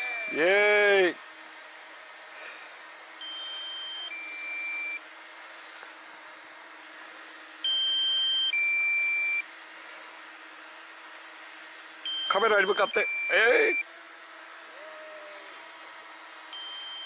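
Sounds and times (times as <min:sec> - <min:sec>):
two-tone electronic beeps: 0:00.0 - 0:00.5, 0:03.2 - 0:05.0, 0:12.1 - 0:13.8, 0:16.6 - 0:17.0
hovering drone hum: 0:00.0 - 0:01.2.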